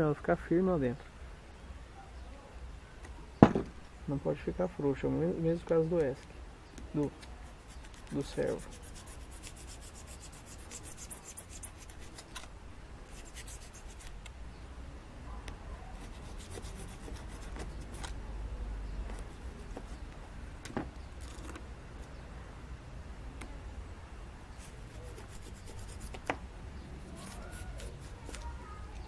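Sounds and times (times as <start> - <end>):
knife cutting styrofoam: 27.1 - 28.7.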